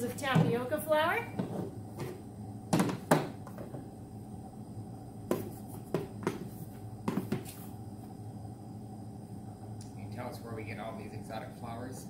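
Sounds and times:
steady low hum: 0:00.0 - 0:12.0
containers knocking on counter: 0:02.7 - 0:03.4.

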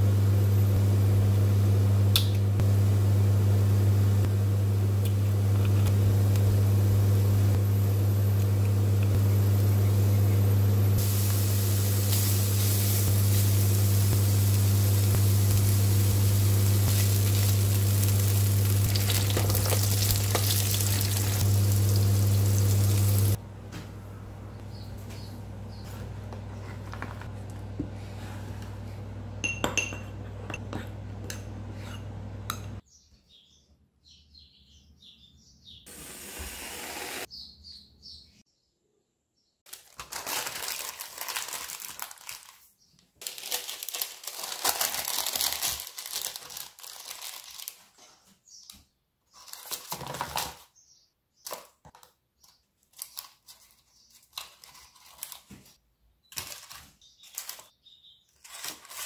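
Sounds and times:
steady low hum: 0:00.0 - 0:29.4
paper towel rustling: 0:11.0 - 0:23.4, 0:39.7 - 0:48.0.

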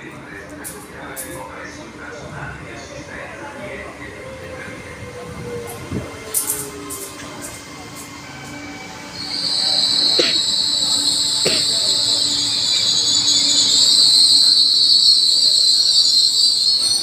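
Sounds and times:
train brakes squealing: 0:04.0 - 0:17.0.

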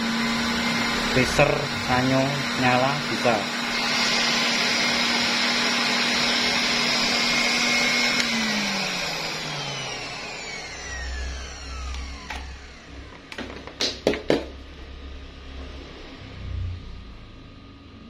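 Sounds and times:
pet grooming blower whine: 0:00.0 - 0:13.5.

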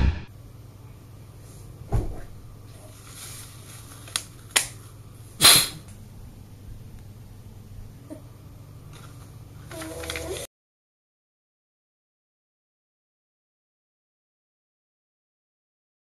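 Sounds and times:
sharp blast of air through nose: 0:05.4 - 0:05.8.

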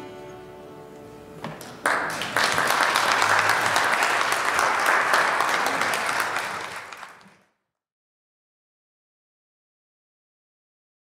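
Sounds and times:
congregation applauding: 0:01.5 - 0:07.6.

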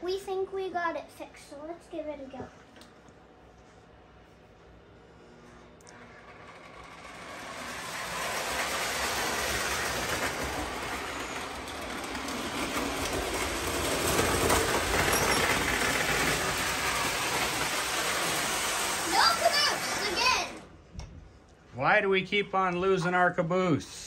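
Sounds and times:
model train rumbling on rails: 0:06.0 - 0:20.7.

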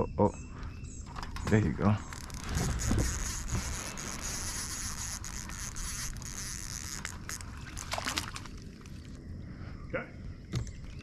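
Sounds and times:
fish splashing at water surface: 0:07.0 - 0:09.1.

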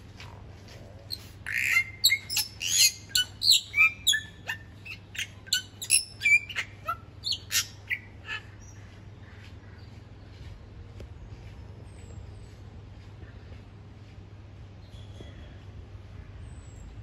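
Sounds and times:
myna squawking and whistling: 0:01.1 - 0:08.4.

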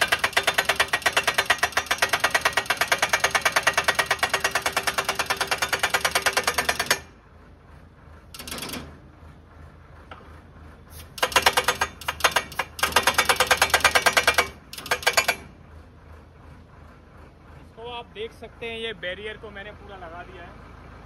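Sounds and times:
hydraulic hammer pounding post: 0:00.0 - 0:07.2, 0:08.4 - 0:09.0, 0:11.1 - 0:15.6.

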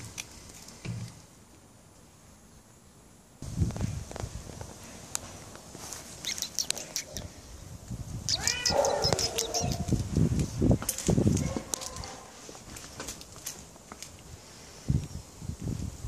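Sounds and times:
sharp clicks: 0:06.2 - 0:07.3
cat meowing: 0:08.3 - 0:09.9.

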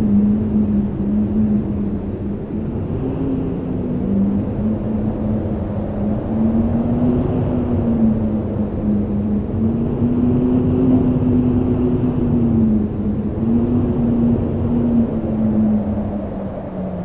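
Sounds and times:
wind howling: 0:00.0 - 0:17.0.

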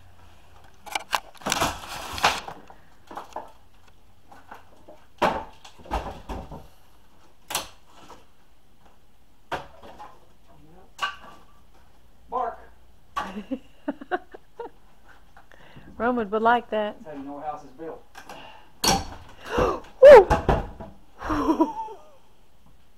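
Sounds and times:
wood splintering crackle: 0:00.6 - 0:03.9
wooden boards cracking and knocking: 0:00.8 - 0:03.6, 0:04.2 - 0:06.7.

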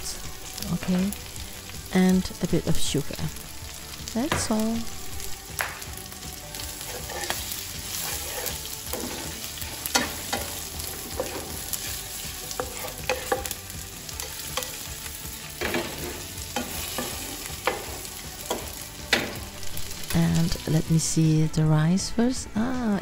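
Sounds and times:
food sizzling in a frying pan: 0:00.0 - 0:23.0
wooden spatula scraping: 0:06.6 - 0:13.6.

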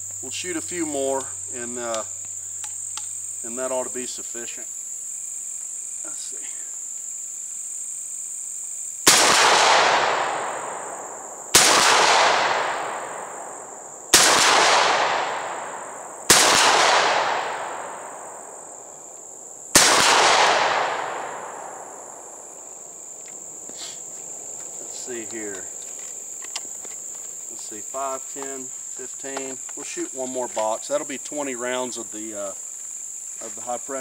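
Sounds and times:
cricket trill: 0:00.0 - 0:34.0
shotgun shots with echo: 0:09.0 - 0:18.5, 0:19.7 - 0:22.0.

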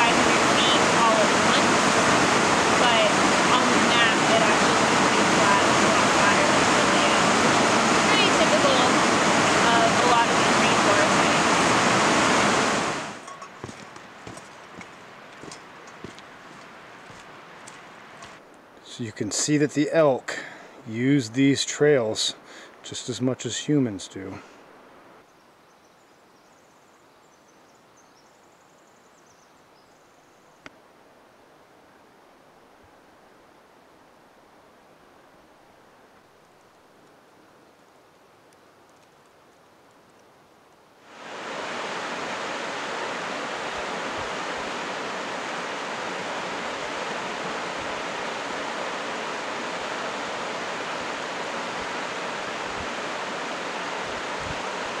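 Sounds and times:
river rushing over gravel: 0:00.0 - 0:18.4, 0:41.0 - 0:55.0
faint steady hiss: 0:00.0 - 0:55.0.

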